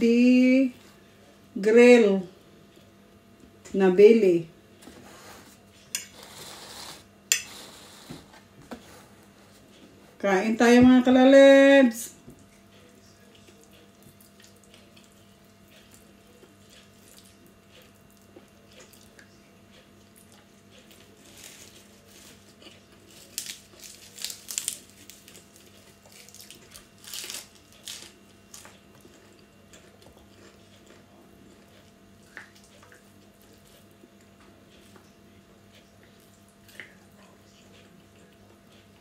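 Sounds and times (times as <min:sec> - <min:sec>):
faint hum: 0:00.0 - 0:39.0
chewing and mouth noises: 0:12.4 - 0:39.0
crisp lettuce crunches: 0:21.2 - 0:29.1.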